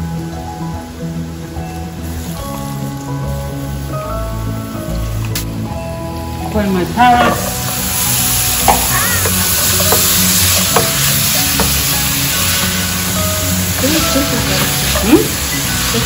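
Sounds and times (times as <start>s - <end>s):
food sizzling in a pan: 0.2s - 16.0s
spatula knocking pan: 7.2s - 15.4s.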